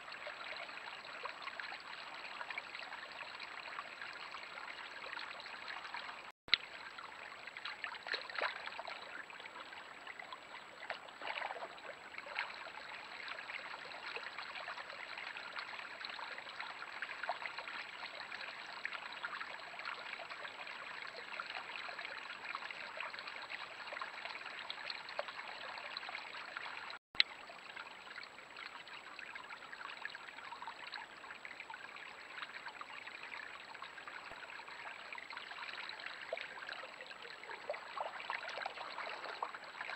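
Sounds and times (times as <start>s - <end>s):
creek water running: 0.0s - 39.9s
water trickling: 0.0s - 39.9s.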